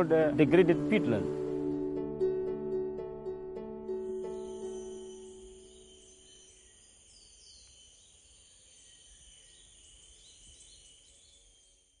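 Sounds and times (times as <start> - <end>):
high insect drone: 4.1 - 11.3.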